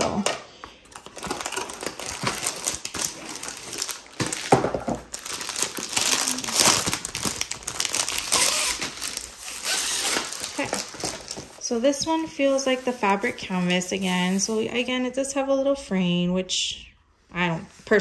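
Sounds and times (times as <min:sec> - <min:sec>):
sharp plastic crackle: 0:00.9 - 0:11.6
plastic sleeve crinkling: 0:00.9 - 0:15.0.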